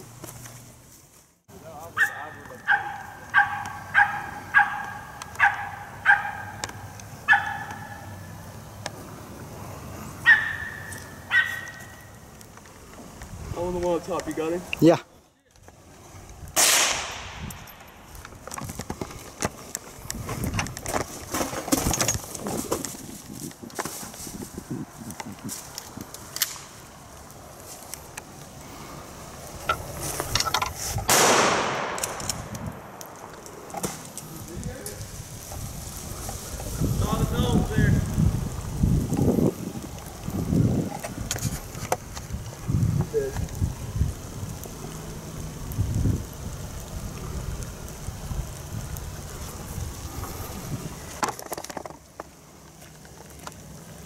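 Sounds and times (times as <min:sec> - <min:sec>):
crackles in dry leaves: 0:00.0 - 0:54.0
dog barking sharply: 0:02.0 - 0:06.6, 0:07.3 - 0:07.9, 0:10.3 - 0:11.8
shotgun shot echoing: 0:16.6 - 0:17.4, 0:31.1 - 0:32.2.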